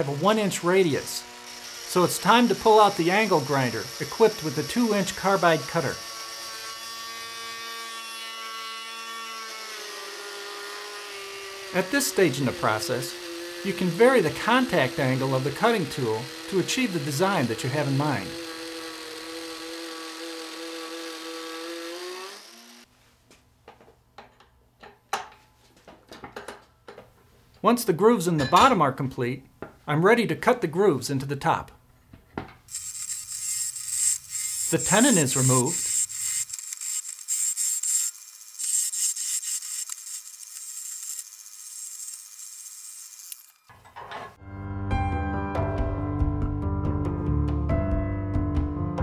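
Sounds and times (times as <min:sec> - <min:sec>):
angle grinder whine carving wood: 0:00.0 - 0:22.9, 0:32.7 - 0:44.1
gouge scraping wood on lathe: 0:10.1 - 0:22.8, 0:32.7 - 0:43.5.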